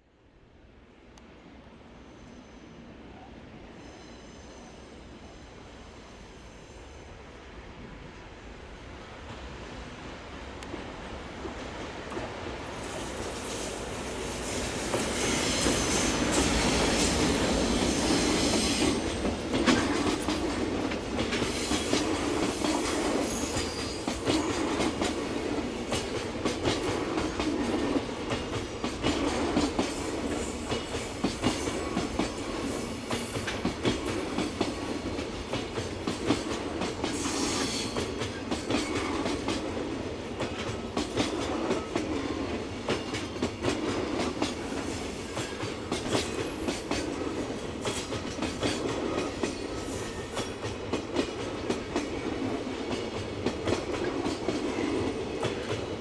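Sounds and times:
freight train wheels clacking: 11.4 - 56.0.

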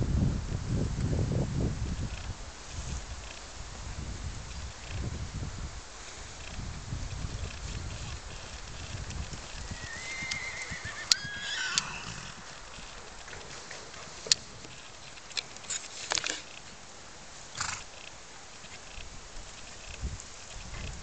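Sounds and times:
horse whinnying: 9.5 - 13.0
sharp clicks: 10.2 - 12.0.

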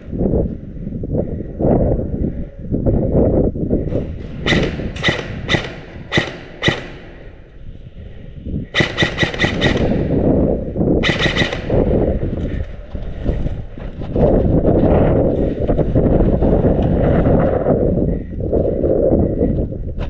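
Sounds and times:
airsoft gun shots: 4.3 - 7.6, 8.8 - 10.2, 11.0 - 11.9.

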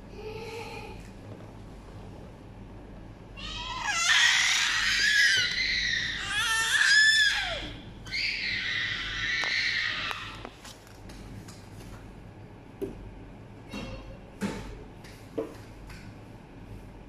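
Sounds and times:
child shrieking: 3.4 - 10.4.

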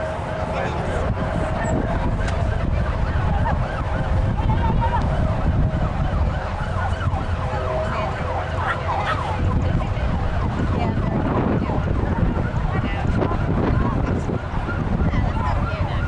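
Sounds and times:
wind buffeting the microphone: 0.0 - 16.0.

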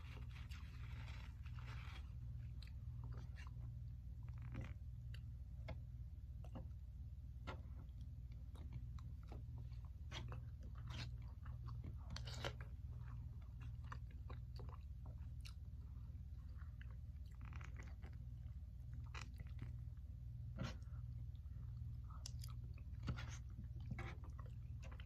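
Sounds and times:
person chewing: 7.5 - 25.0.

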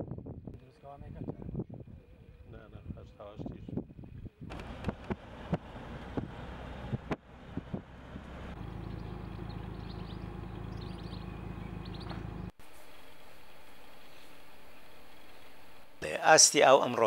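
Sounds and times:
car interior road noise: 4.5 - 16.0
knocks and bumps: 11.9 - 12.5.

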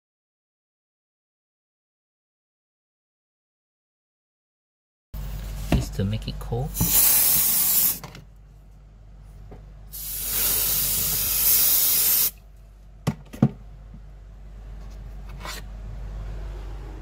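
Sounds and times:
aerosol spray hissing: 6.8 - 8.0, 9.9 - 12.4.

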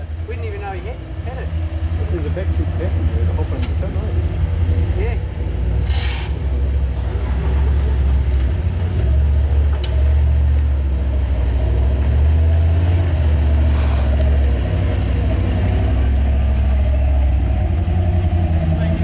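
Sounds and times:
engine running at low revs: 0.0 - 19.0
brief hiss: 5.8 - 6.4, 13.7 - 14.2.

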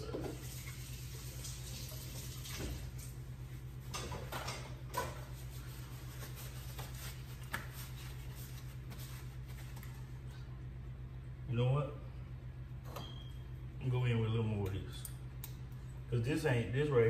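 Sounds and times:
steady low hum: 2.7 - 17.0
kitchen rustles and knocks: 3.9 - 5.5.

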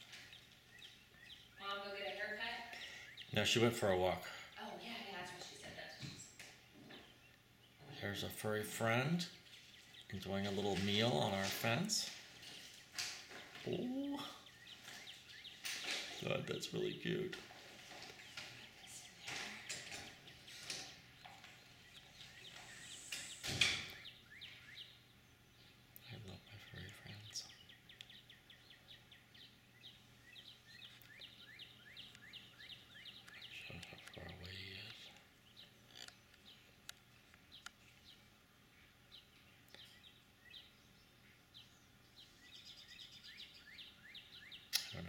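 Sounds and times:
birds chirping: 0.0 - 45.0
faint sharp clicks: 44.7 - 45.0.

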